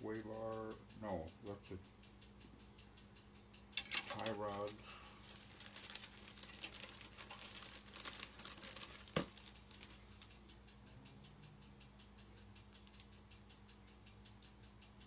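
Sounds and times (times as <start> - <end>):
plastic bag crinkling: 3.8 - 10.3.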